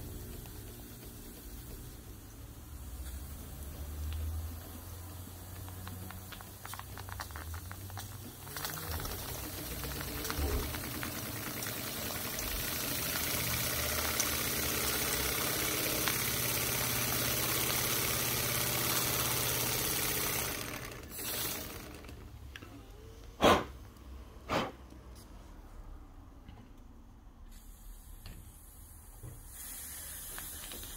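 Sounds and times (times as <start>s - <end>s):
loud steam hiss: 29.4s - 30.9s.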